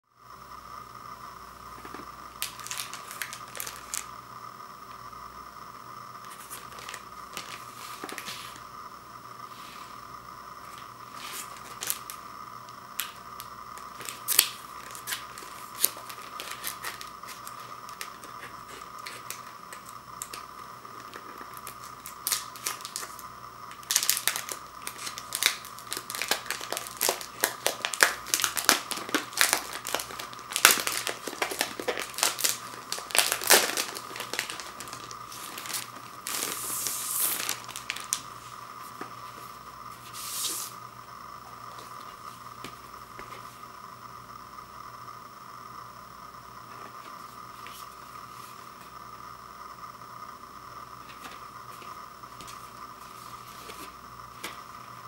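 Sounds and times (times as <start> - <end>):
faint steady whine: 0.0 - 55.0
plastic wrap crinkling: 1.8 - 4.1, 6.2 - 8.6, 10.7 - 12.2, 13.0 - 39.4.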